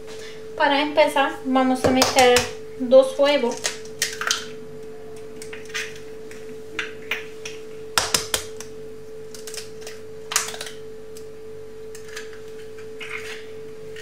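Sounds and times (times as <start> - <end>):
steady hum: 0.0 - 14.0
eggs cracking against plastic bowl: 1.8 - 2.6, 6.8 - 8.7.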